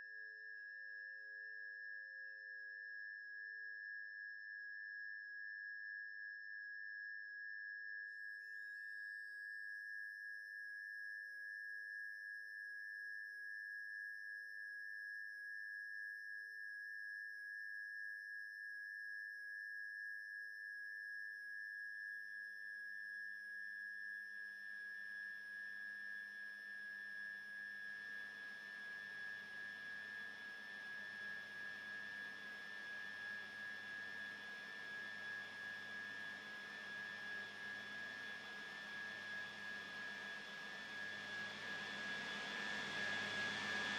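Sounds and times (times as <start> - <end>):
high electronic sine tone: 25.3 - 43.9.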